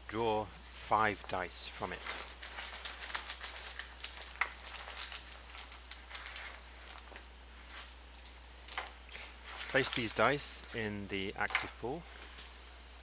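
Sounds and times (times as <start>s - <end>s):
cloth rustling: 1.9s - 10.8s.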